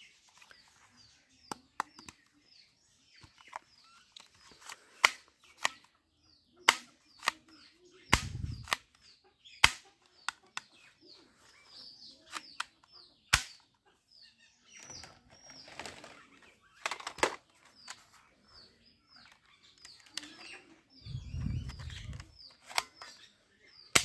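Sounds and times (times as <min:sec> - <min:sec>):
small birds chirping: 0:00.0 - 0:24.0
plastic toy guns clicking: 0:04.6 - 0:05.9, 0:06.6 - 0:07.5, 0:08.1 - 0:09.0, 0:09.6 - 0:10.7, 0:13.3 - 0:13.6, 0:16.8 - 0:17.4, 0:21.7 - 0:23.2
loud sharp snaps: 0:08.1 - 0:08.8.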